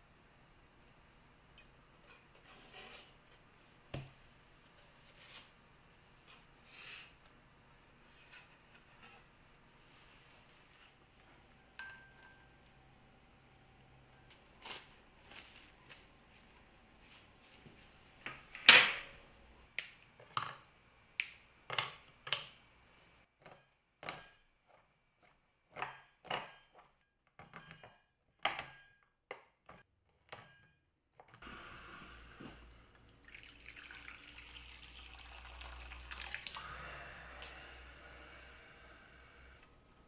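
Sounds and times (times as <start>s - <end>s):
water running into a bowl: 33.0s - 36.6s.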